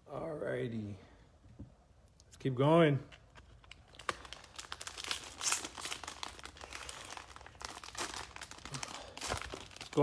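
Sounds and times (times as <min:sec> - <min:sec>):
foil wrapper crinkling and tearing: 0:03.3 - 0:10.0.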